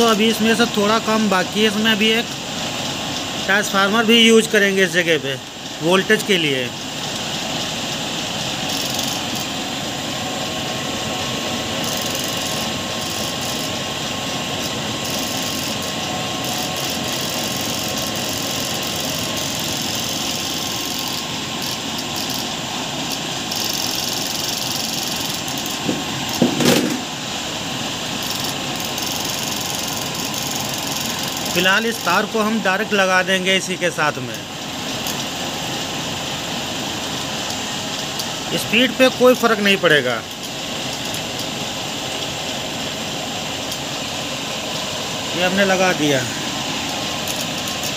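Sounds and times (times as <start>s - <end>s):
electric motor whirring: 6.8s - 27.2s, 28.1s - 32.8s, 45.4s - 47.9s.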